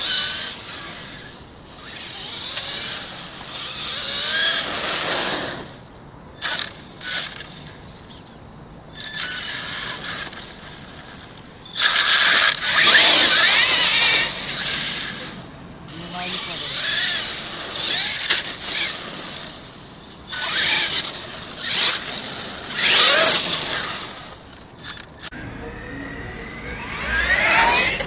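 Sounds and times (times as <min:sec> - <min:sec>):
electric motor whine rising: 0:00.0 - 0:05.8, 0:11.7 - 0:15.4, 0:20.2 - 0:28.0
tyre noise on asphalt: 0:00.0 - 0:15.4.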